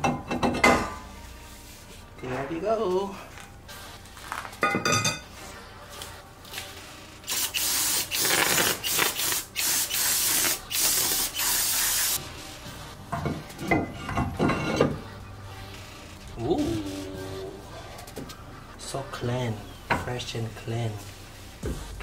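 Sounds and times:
aerosol spray hissing: 7.3s - 12.2s.

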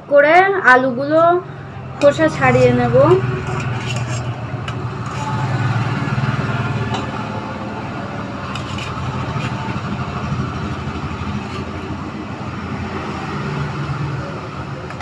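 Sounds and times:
low motor hum: 0.8s - 15.0s
knife peeling potatoes: 3.4s - 5.7s, 8.5s - 12.0s.

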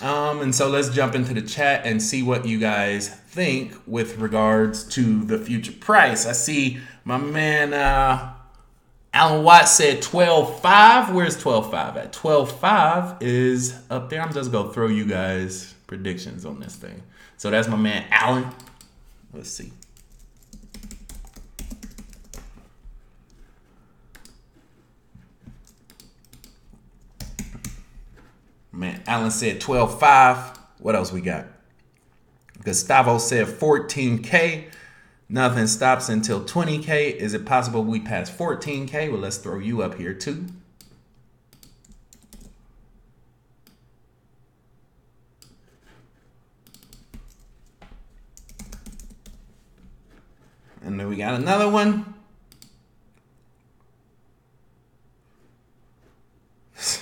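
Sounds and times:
typing on computer keyboard: 19.8s - 22.7s, 25.5s - 28.0s, 40.8s - 42.6s, 46.6s - 47.8s, 48.4s - 49.4s.

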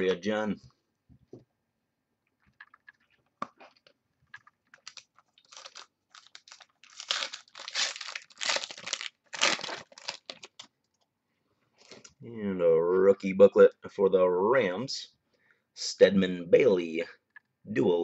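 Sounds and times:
wrapper tearing and crinkling: 4.6s - 10.7s.

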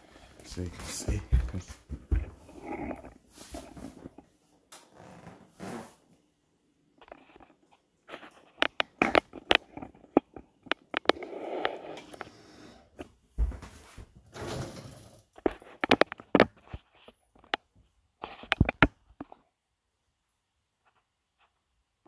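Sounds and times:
dishwasher racks scraping: 14.3s - 15.2s.

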